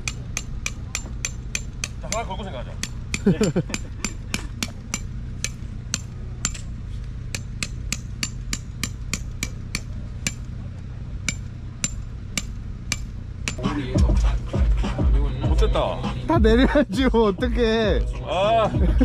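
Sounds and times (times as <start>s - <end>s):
hammer striking metal peg: 0.0s - 10.6s, 11.2s - 13.6s.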